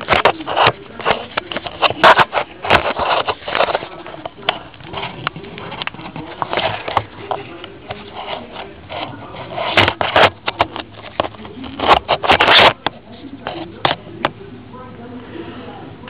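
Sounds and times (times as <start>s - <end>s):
handling rustles and scrapes: 0.0s - 14.2s.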